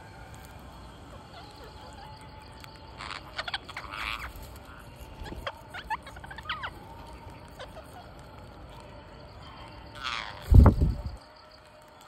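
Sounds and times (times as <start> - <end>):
parakeets squawking: 1.0 - 8.5, 9.6 - 10.8.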